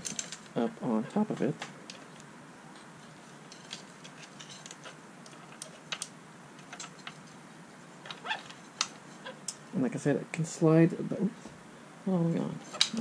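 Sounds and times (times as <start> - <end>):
bicycle chain clicking and rattling: 0.0 - 0.6, 3.5 - 7.3.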